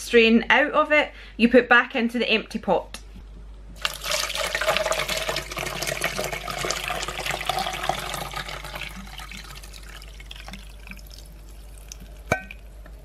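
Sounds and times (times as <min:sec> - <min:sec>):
syrup pouring and splashing: 0:03.8 - 0:13.0.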